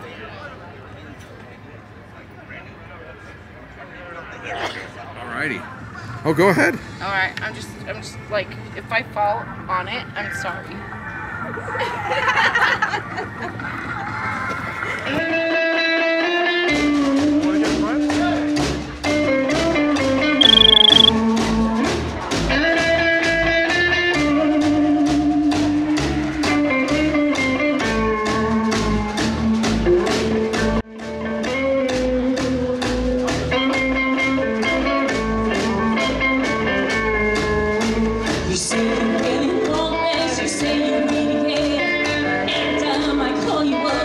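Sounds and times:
short high beep: 20.4s - 21.2s
rockabilly live band music: 21.8s - 43.1s.

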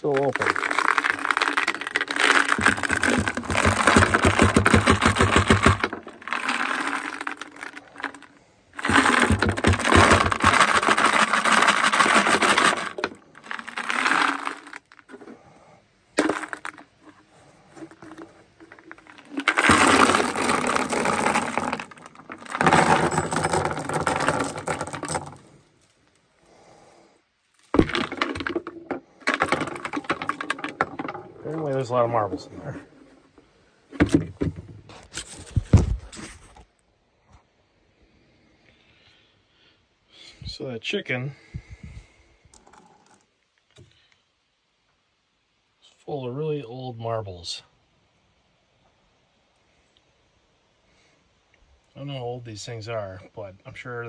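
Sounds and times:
marbles clattering onto wooden table: 0.0s - 15.3s, 16.2s - 17.2s, 17.9s - 25.5s, 27.8s - 32.0s.

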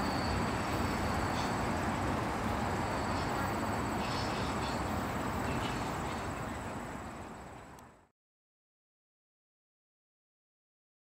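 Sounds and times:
steel wheels rumbling on track: 0.0s - 7.8s.

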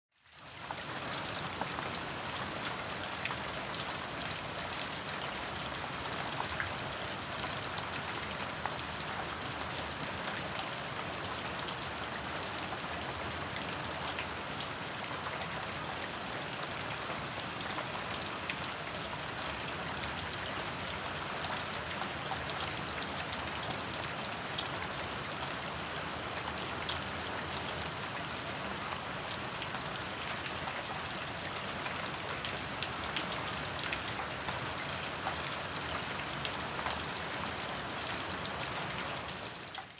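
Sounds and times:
soft rain falling: 0.1s - 39.9s.

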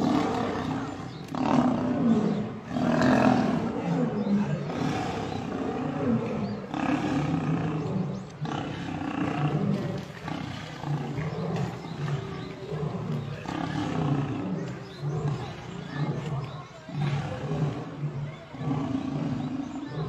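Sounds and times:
lions growling: 0.0s - 20.0s.

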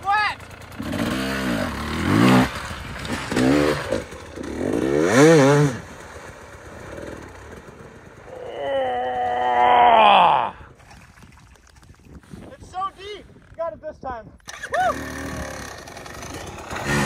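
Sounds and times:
dirt bike engine revving: 0.1s - 9.2s, 14.4s - 17.0s.

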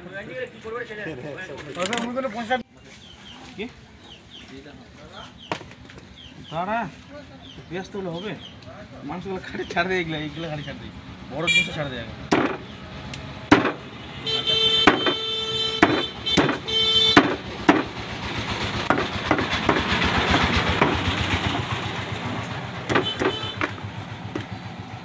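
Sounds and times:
passing vehicle engine: 9.8s - 14.6s, 17.0s - 25.0s
vehicle horn blasts: 11.4s - 11.8s, 14.0s - 17.4s, 22.9s - 23.8s
cleaver chopping on wooden block: 12.3s - 12.6s, 13.5s - 13.8s, 14.8s - 15.2s, 15.8s - 18.0s, 18.8s - 21.1s, 22.9s - 24.6s.

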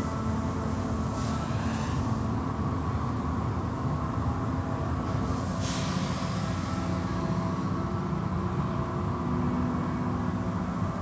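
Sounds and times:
car wash machinery hum: 0.0s - 11.0s.

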